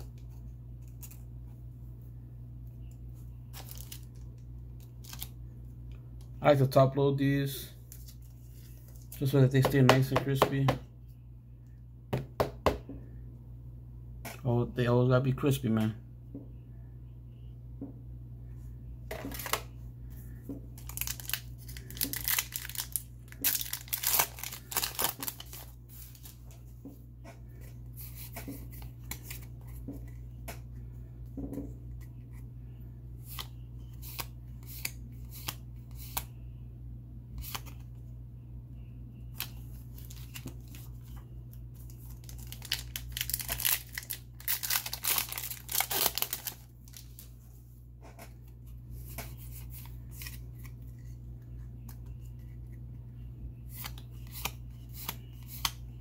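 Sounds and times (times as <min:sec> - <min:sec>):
foil wrapper crinkling: 0:03.5 - 0:05.3, 0:20.8 - 0:26.4, 0:41.8 - 0:47.3
low hum: 0:16.0 - 0:56.0
cards clicking and sliding: 0:33.3 - 0:36.3.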